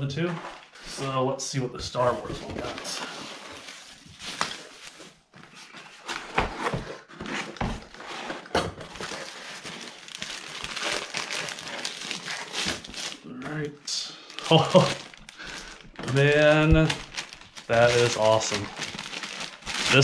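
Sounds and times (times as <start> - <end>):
bubble wrap crinkling: 2.0 - 20.0
cardboard packaging rustling: 2.0 - 20.0.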